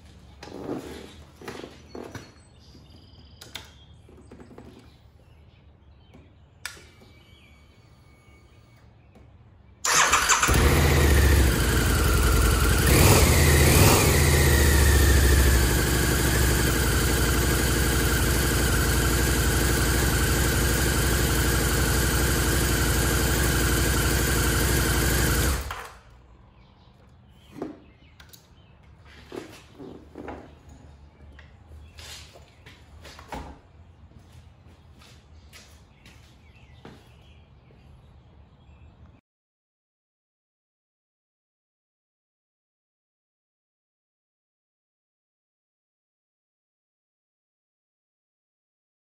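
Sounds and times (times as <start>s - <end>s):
motorcycle engine starting and idling: 9.8s - 32.2s
engine revving: 9.9s - 26.0s.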